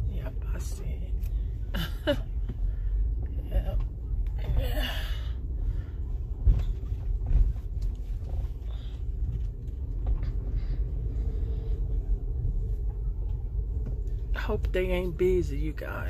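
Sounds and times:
car rumbling from inside cabin: 0.0 - 16.0.

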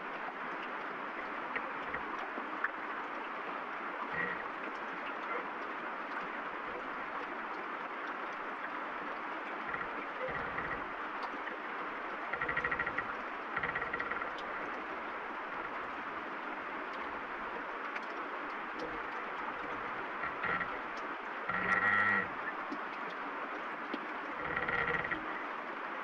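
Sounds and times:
heavy rain falling: 0.0 - 26.0
tree branches creaking: 4.1 - 4.4, 9.7 - 10.9, 12.2 - 14.7, 18.8 - 22.4, 24.4 - 25.4.

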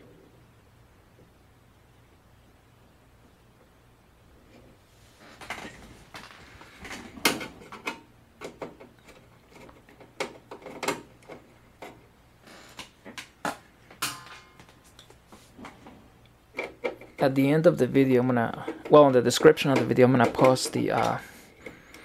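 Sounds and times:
clicks and knocks of connectors: 12.7 - 15.8, 18.6 - 22.0.

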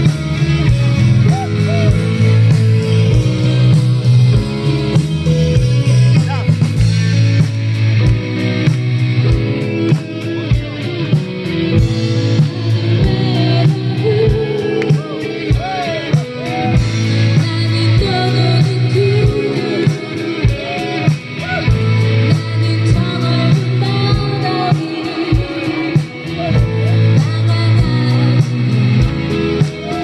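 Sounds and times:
live rock band playing: 0.0 - 30.0
person singing: 11.9 - 30.0.

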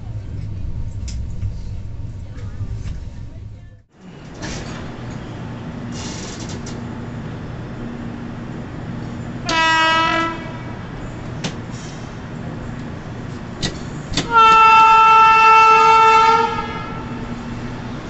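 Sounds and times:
train rolling on track: 0.0 - 18.0
wheels clicking on rails: 5.9 - 7.0
train horn blast: 9.4 - 10.7, 14.3 - 17.3.

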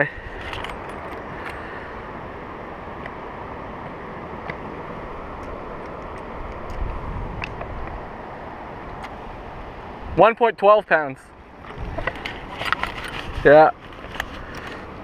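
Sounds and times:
wind noise on microphone: 3.5 - 8.6, 11.6 - 15.0.

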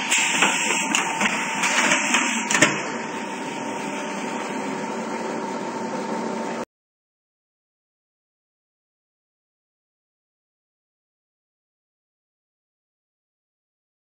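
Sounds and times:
machine humming and whining: 0.0 - 6.7.

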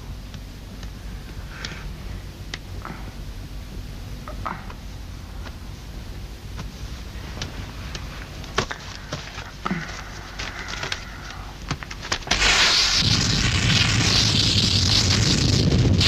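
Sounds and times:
loud rushing hiss: 12.3 - 16.0.

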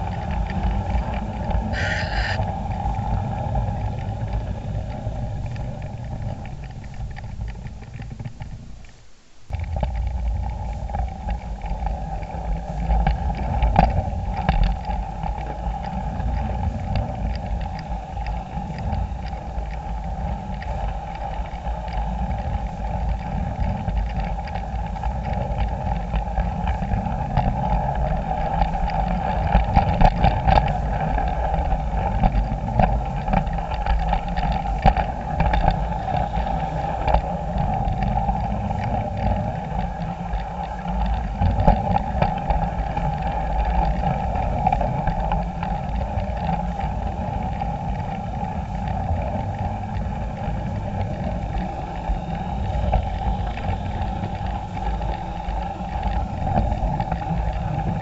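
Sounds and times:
wheels rumbling on rail: 0.0 - 8.7, 9.5 - 58.0
electric motor humming: 1.8 - 2.4.

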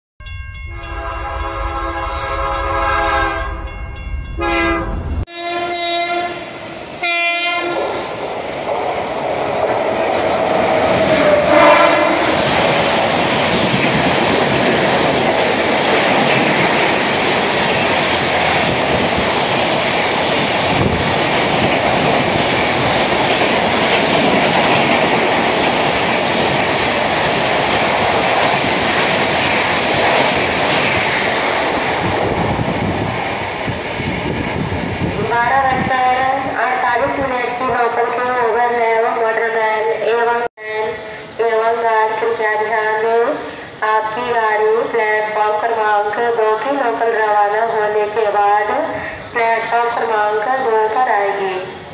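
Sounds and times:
train horn blasts: 0.7 - 8.0, 11.2 - 12.5
train wheels on rail clickety-clack: 7.7 - 35.9.

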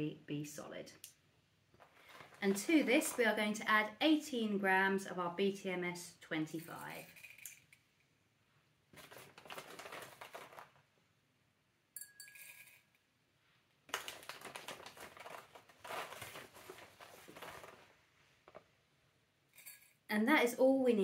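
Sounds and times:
plastic bag crinkling: 1.8 - 3.4, 8.9 - 10.9, 13.9 - 18.6
spoon scooping pellets: 9.0 - 10.6, 12.1 - 12.9
short ringing clink: 12.0 - 12.8.

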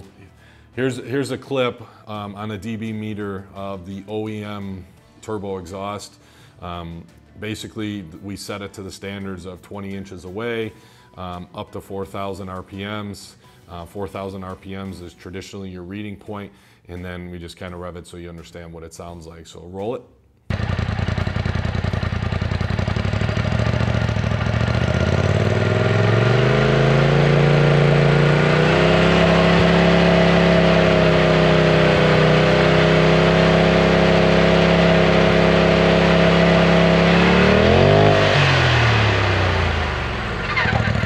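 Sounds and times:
vehicle engine revving: 20.5 - 41.0.

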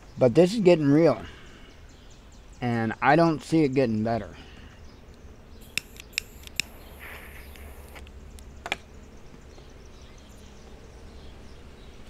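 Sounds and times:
steady low hum: 3.8 - 12.0
short sharp clicks: 5.6 - 8.0.

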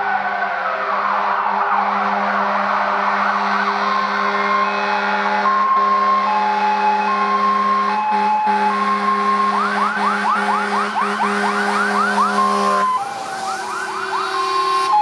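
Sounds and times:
rapid yelping siren: 0.0 - 15.0
two-tone electronic siren: 0.0 - 15.0
air horn blast: 7.2 - 12.9.

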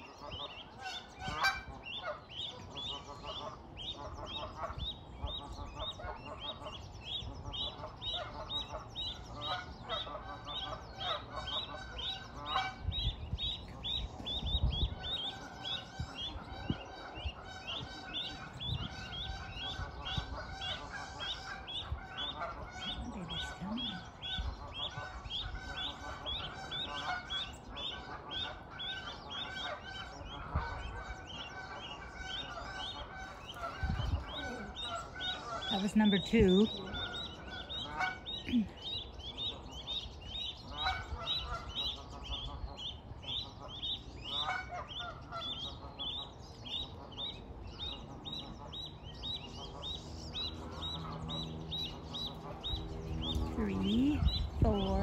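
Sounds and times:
goslings peeping: 0.0 - 55.0
lower bird calls: 0.0 - 55.0.

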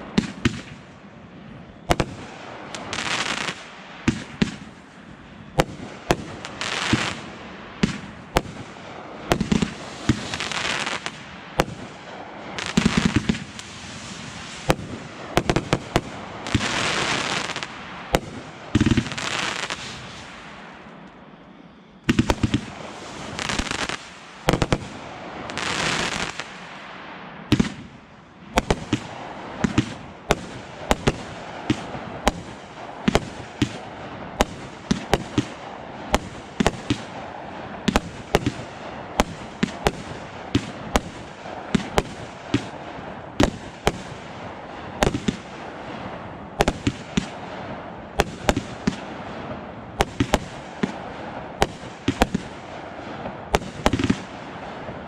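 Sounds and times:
fireworks bangs: 0.0 - 21.0, 22.0 - 55.0
fireworks crackling hiss: 0.0 - 21.0, 22.0 - 55.0
rushing hisses of rockets: 5.7 - 20.8, 22.1 - 27.9.

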